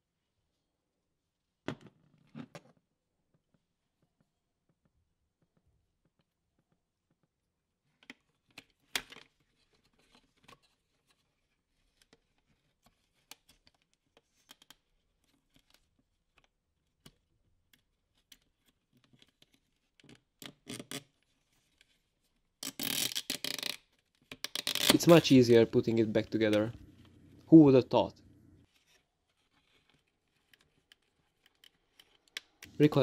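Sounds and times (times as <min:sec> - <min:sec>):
plastic parts clicking and scraping: 0:08.0 - 0:22.0, 0:22.6 - 0:25.3, 0:28.6 - 0:33.0.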